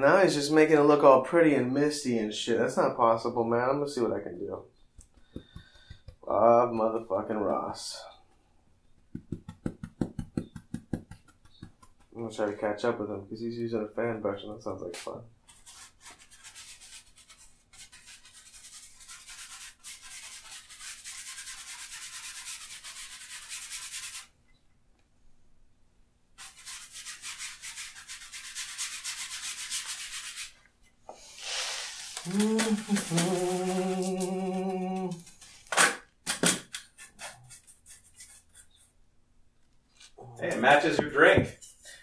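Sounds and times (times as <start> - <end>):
brush scrubbing paint on canvas: 9.1 - 12.2, 15.5 - 24.3, 26.4 - 30.6, 31.2 - 35.4, 36.9 - 39.0
person humming: 31.5 - 35.4.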